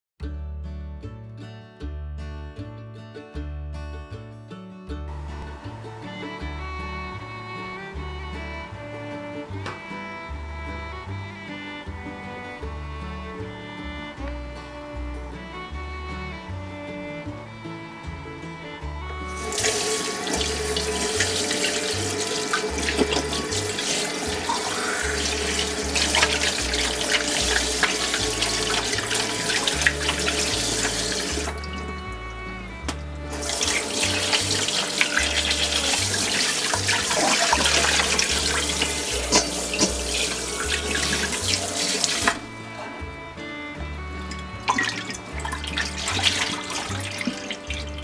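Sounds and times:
background music: 0:00.2 - 0:48.0
hands rinsing raw chicken: 0:19.3 - 0:32.3, 0:33.3 - 0:42.4, 0:44.3 - 0:48.0
tap running into glass bowl: 0:32.9 - 0:42.4.

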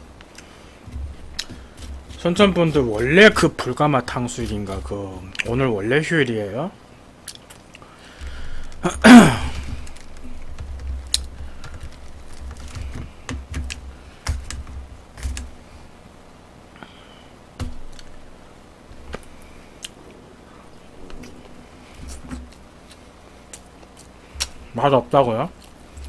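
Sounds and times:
muffled chewing: 0:00.2 - 0:05.6, 0:07.2 - 0:08.9, 0:19.0 - 0:26.0.

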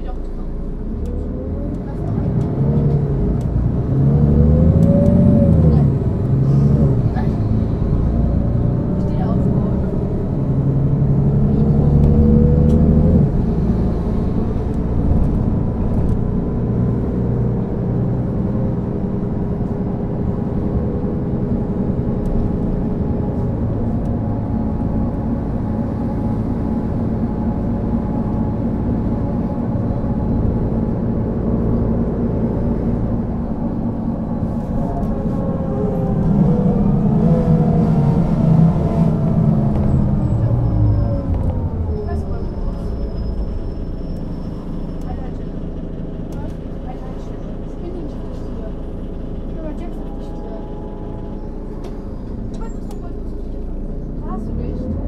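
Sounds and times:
bus diesel engine running: 0:00.0 - 0:55.0.

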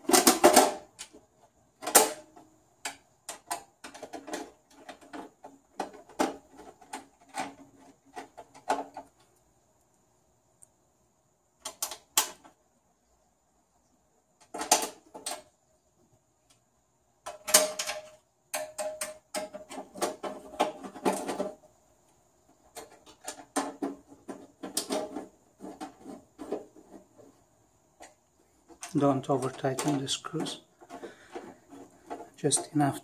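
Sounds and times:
sheet metal clicks and scrapes: 0:00.0 - 0:09.4, 0:17.2 - 0:21.7, 0:22.5 - 0:33.0.

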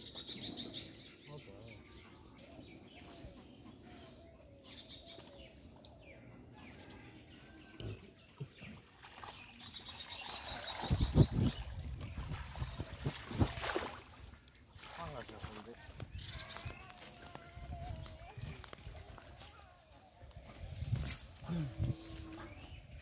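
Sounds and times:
water splashing and sloshing: 0:08.4 - 0:19.4.

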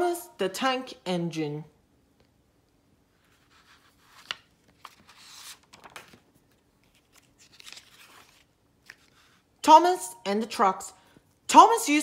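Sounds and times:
book pages turning: 0:03.2 - 0:09.4
paper rustling: 0:03.2 - 0:09.4.

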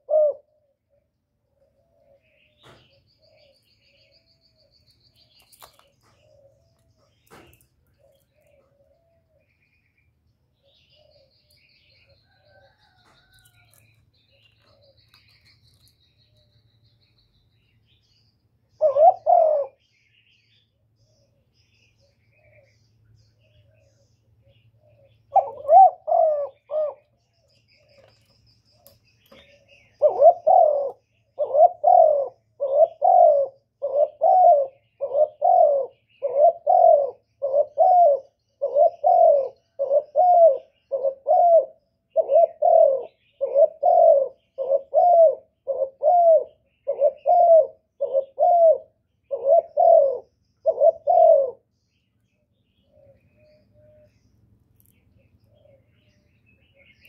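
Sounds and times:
dove cooing: 0:00.0 - 0:04.8, 0:05.4 - 0:09.6, 0:10.6 - 0:16.6, 0:18.7 - 0:19.8, 0:23.4 - 0:28.2, 0:29.3 - 0:51.7, 0:52.8 - 0:54.2.

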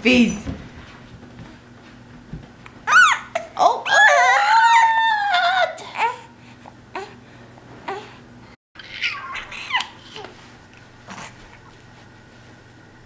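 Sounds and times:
infant squealing: 0:02.9 - 0:05.6, 0:08.8 - 0:10.0
infant cooing: 0:08.8 - 0:10.3.

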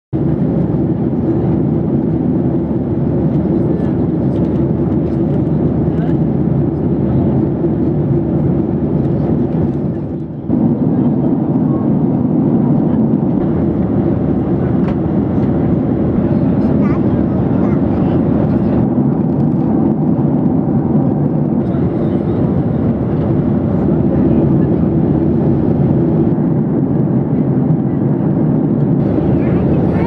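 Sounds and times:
jet cabin engine rush: 0:00.2 - 0:30.0.

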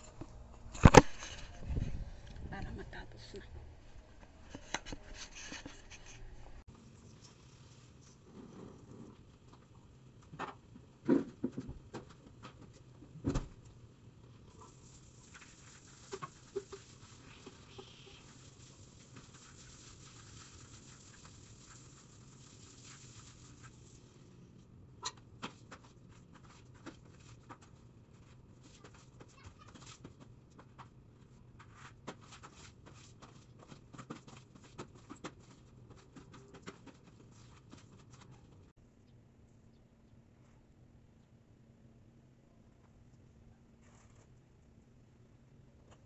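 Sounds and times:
broom scrubbing wet tiled floor: 0:04.1 - 0:06.4, 0:14.5 - 0:24.3.

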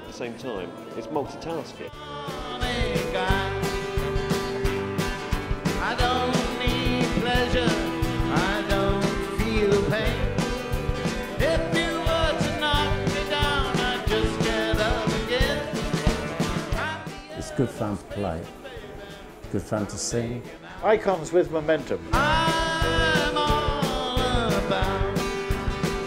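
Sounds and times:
band music: 0:01.7 - 0:26.0
person singing: 0:01.9 - 0:04.1, 0:05.7 - 0:10.6, 0:11.2 - 0:19.5, 0:22.1 - 0:26.0
steady drum beat: 0:02.3 - 0:26.0.

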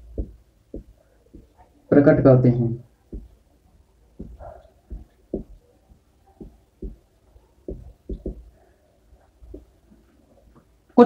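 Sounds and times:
marker thumping on whiteboard: 0:00.0 - 0:01.6, 0:03.1 - 0:03.4, 0:04.2 - 0:05.6, 0:06.4 - 0:07.0, 0:07.7 - 0:08.6, 0:09.5 - 0:09.7.

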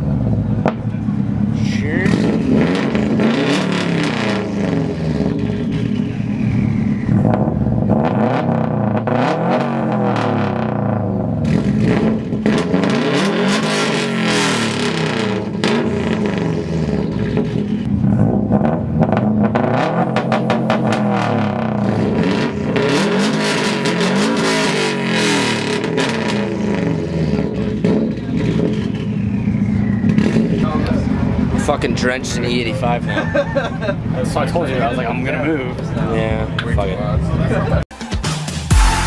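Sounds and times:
loud engines revving hard: 0:00.0 - 0:37.8
exhaust crackling pops: 0:00.6 - 0:01.1, 0:14.8 - 0:22.8, 0:25.7 - 0:31.1.

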